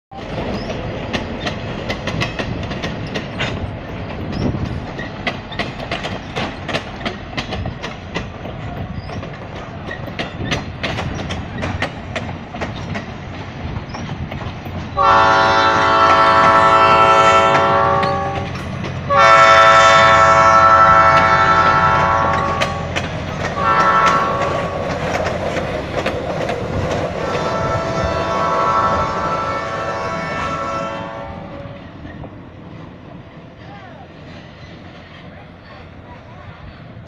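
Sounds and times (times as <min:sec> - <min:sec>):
train rumbling past: 0:00.1 - 0:37.0
locomotive air horn: 0:15.0 - 0:23.0, 0:23.6 - 0:24.8, 0:27.3 - 0:31.8.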